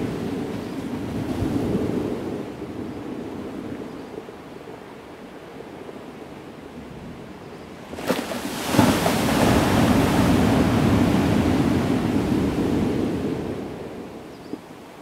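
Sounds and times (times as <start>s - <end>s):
ocean waves breaking on beach: 0.0s - 3.8s, 7.8s - 15.0s.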